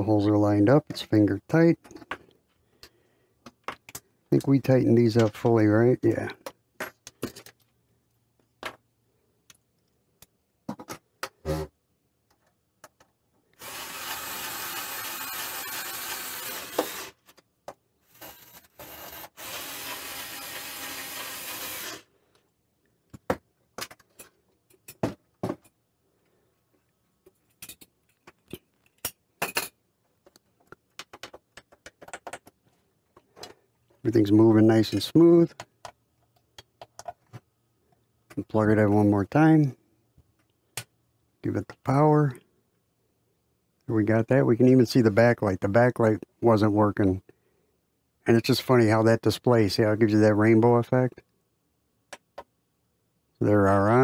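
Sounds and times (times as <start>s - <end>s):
electric screwdriver running: 13.6s - 17.2s, 18.1s - 22.0s.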